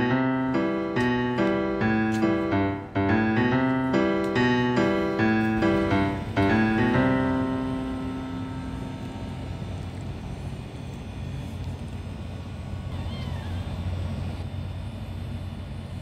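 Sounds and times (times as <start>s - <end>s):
soft electric piano chords: 0.0s - 12.4s.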